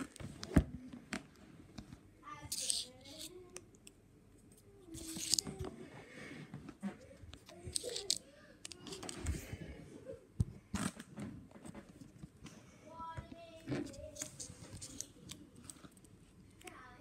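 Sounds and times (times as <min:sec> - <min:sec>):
wrapper crinkling: 0:07.7 - 0:09.2.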